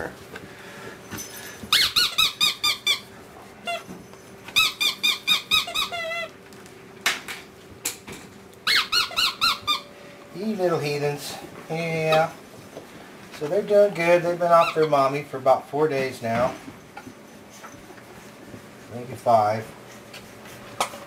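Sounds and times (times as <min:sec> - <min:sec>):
squeaky dog toy: 0:01.7 - 0:03.9, 0:04.5 - 0:06.3, 0:08.6 - 0:09.9, 0:14.6 - 0:15.0.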